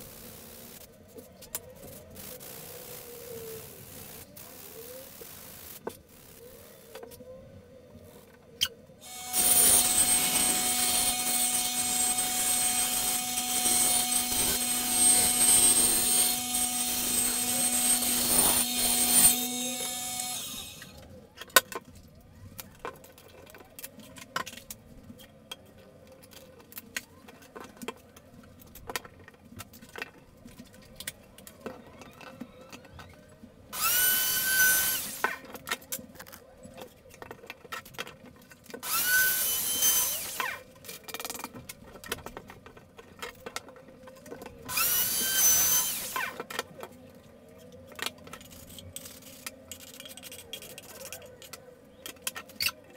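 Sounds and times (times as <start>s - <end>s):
bandsaw cutting plywood: 9.0s - 21.0s, 33.7s - 35.5s, 38.8s - 40.6s, 44.7s - 46.6s
router whine: 9.0s - 21.1s, 32.0s - 35.6s, 38.8s - 40.6s, 44.7s - 46.6s.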